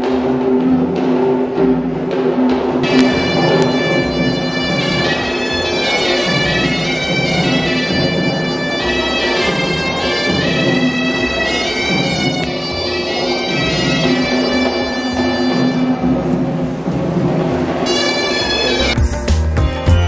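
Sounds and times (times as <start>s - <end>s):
drums beating: 0.0s - 20.0s
shrill double-reed pipe melody: 2.8s - 19.1s.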